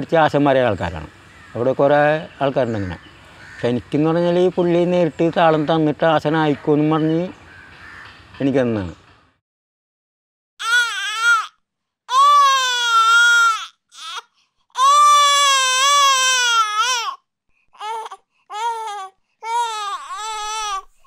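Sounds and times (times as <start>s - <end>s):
infant crying: 10.6s - 21.0s.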